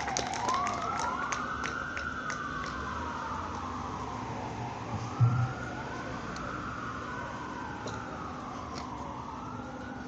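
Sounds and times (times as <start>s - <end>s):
emergency siren wailing: 0.0s - 10.0s
low thump: 5.0s - 5.6s.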